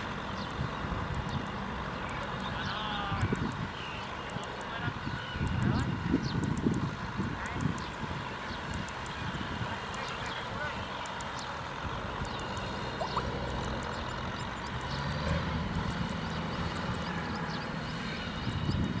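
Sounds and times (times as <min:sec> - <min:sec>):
short high chirps: 0:13.0 - 0:13.2.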